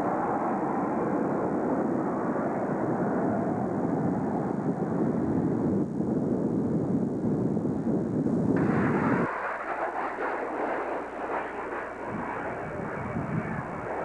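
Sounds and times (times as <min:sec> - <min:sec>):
jet flying past: 0:08.6 - 0:14.0.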